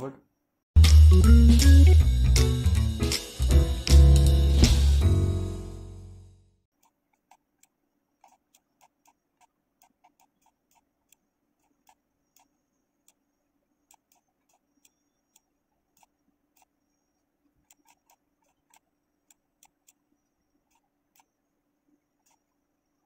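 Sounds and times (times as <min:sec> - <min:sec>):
computer mouse clicking: 0:06.8 - 0:23.0
faint steady hum: 0:06.9 - 0:23.0.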